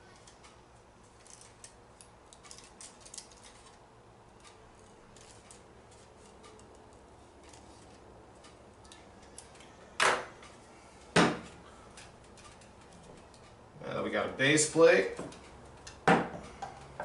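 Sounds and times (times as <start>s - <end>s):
loud sharp knocks: 11.2s - 11.5s.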